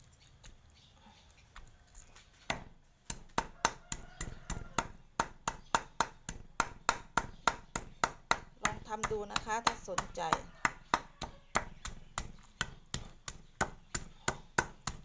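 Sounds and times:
cleaver chopping on wooden block: 0:02.5 - 0:15.0.

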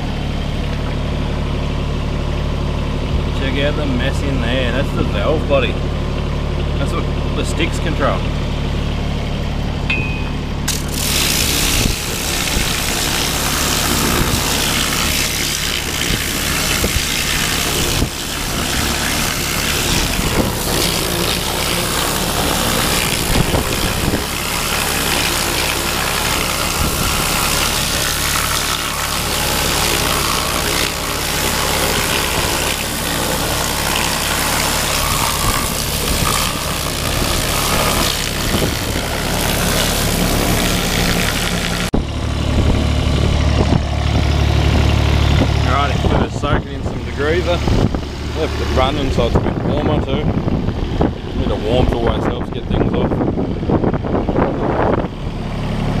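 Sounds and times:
engine running steadily: 0:00.0 - 0:56.0
pressure washer jet spraying: 0:10.6 - 0:41.9.

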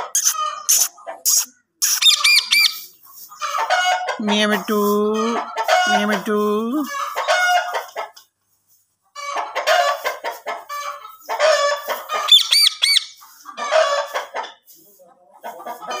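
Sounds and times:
parakeet squawks: 0:00.1 - 0:02.8, 0:12.2 - 0:13.2.

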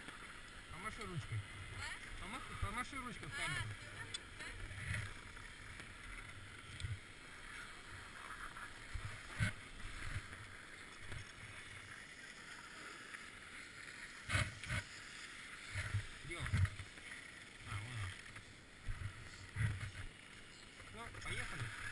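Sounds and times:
skis scraping over snow: 0:00.0 - 0:21.9.

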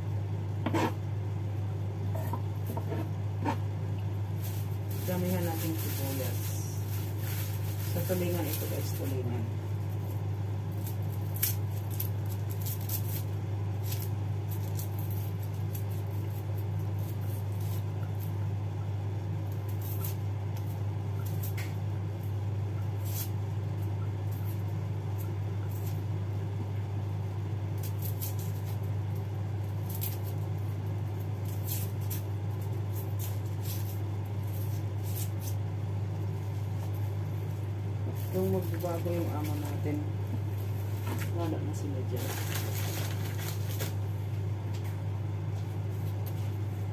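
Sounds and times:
steady low hum: 0:00.0 - 0:46.9
knife peeling onions: 0:04.4 - 0:18.4, 0:19.5 - 0:22.0, 0:22.9 - 0:26.0, 0:27.7 - 0:35.7.

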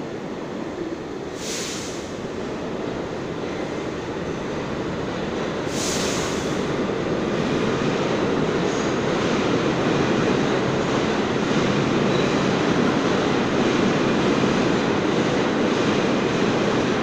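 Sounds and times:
subway train wheels rumbling: 0:00.0 - 0:17.0
short high hiss: 0:01.4 - 0:02.2, 0:05.7 - 0:06.6.

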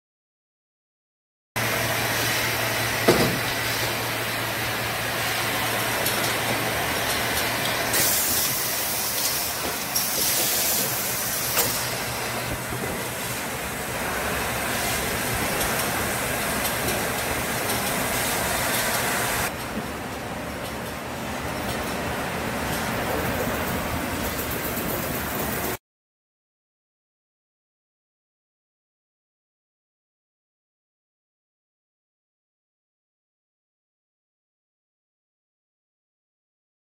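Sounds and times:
machine humming with rushing air: 0:01.6 - 0:19.6
short bursts of hissing: 0:07.9 - 0:12.3.

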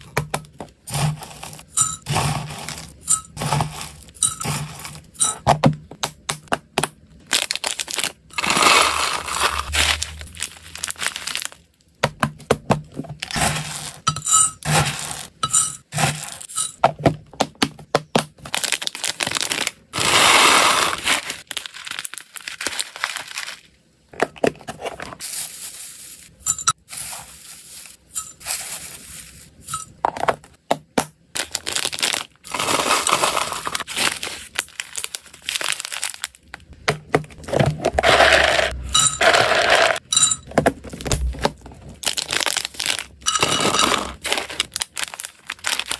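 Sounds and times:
dry food clinking against glass: 0:01.7 - 0:05.4, 0:15.4 - 0:15.9, 0:28.1 - 0:28.7, 0:38.1 - 0:40.5, 0:43.2 - 0:44.2
dry food pouring: 0:31.9 - 0:36.3, 0:38.0 - 0:40.0.

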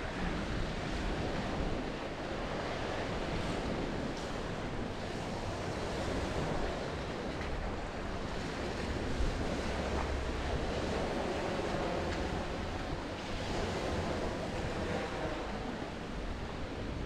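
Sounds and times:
waves washing onto shingle: 0:00.0 - 0:17.0
wind on microphone: 0:00.0 - 0:17.0.

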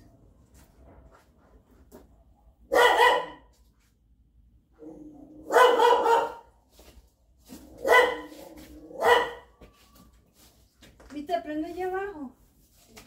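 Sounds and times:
dog barking: 0:02.6 - 0:03.5, 0:04.8 - 0:06.5, 0:07.8 - 0:09.5.

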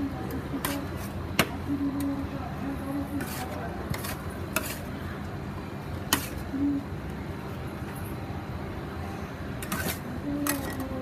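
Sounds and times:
steady hum: 0:00.0 - 0:11.0
metal scraping on steel plate: 0:03.2 - 0:04.9, 0:09.6 - 0:10.8.

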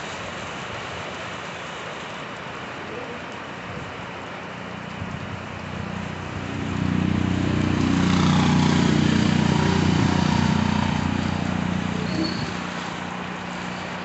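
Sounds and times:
steady rain hiss: 0:00.0 - 0:14.0
auto-rickshaw engine passing: 0:05.3 - 0:14.0.

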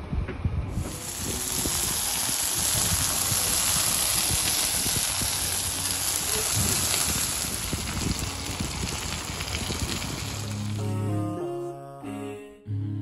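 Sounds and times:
food sizzling on hot plate: 0:00.7 - 0:10.8.

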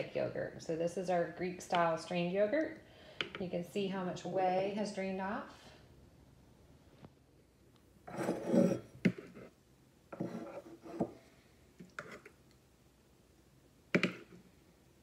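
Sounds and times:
spoon scraping bowl: 0:08.1 - 0:09.5, 0:10.1 - 0:11.3, 0:11.9 - 0:12.4.

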